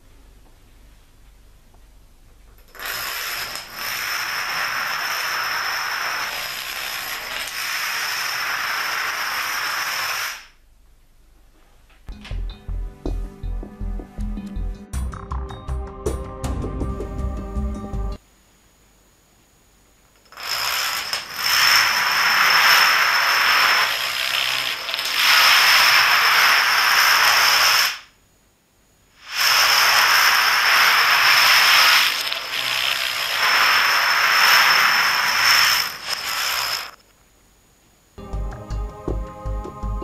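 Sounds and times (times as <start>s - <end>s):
dominoes toppling clatter: 2.7s - 10.5s, 20.2s - 28.1s, 29.2s - 37.0s.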